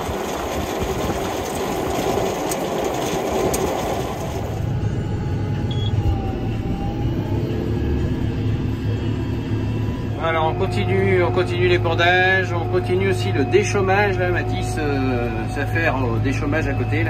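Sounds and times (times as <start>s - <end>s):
compost spreader beaters spinning: 0.0s - 4.7s
tractor engine hum: 0.0s - 17.0s.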